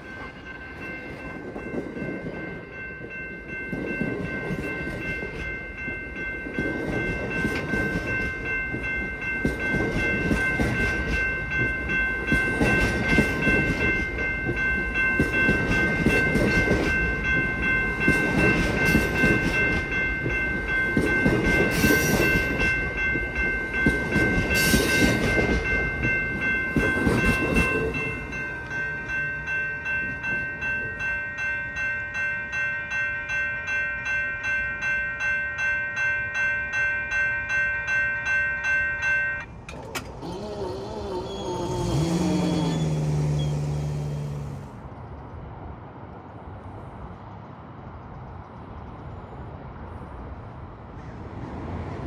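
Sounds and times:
bell ringing: 0.0s - 40.0s
steady high ringing tones: 0.0s - 40.0s.

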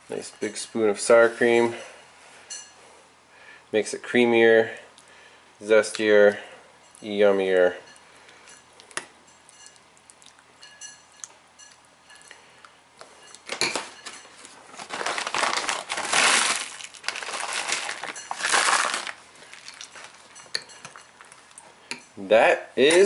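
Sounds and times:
spoon clinking in soup bowl: 7.8s - 9.9s, 10.6s - 12.4s, 20.3s - 21.2s
plastic bag crinkling: 13.4s - 21.6s.

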